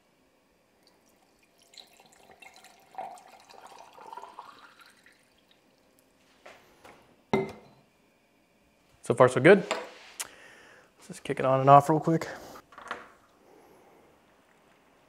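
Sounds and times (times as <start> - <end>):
liquid pouring into reservoir: 0.8 - 6.0.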